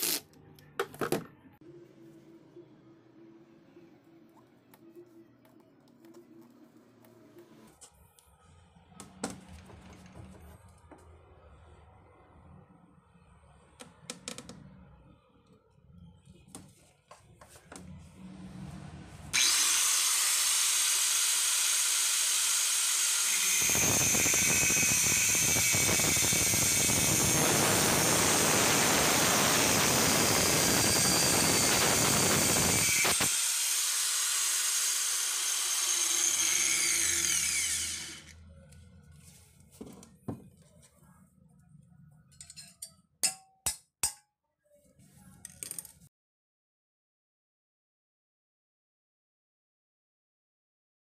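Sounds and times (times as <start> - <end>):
angle grinder whining: 19.3 - 38.4
grinder disc grinding steel: 19.4 - 38.4.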